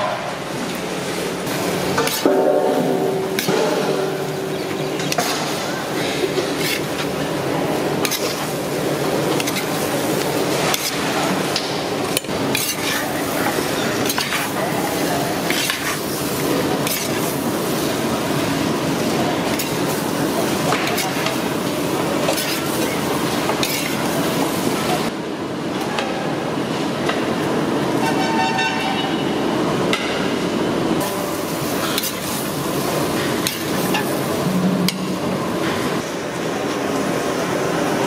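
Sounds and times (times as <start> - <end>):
frying sizzle: 1.4 - 25.1, 31.0 - 35.2
metal spatula scraping pan: 12.5 - 14.5.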